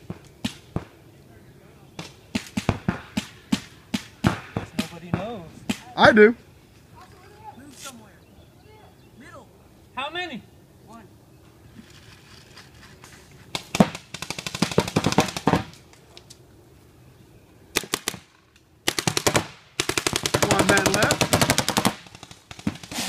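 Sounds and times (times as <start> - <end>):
paintball markers firing: 13.5 - 16.0, 18.9 - 23.0.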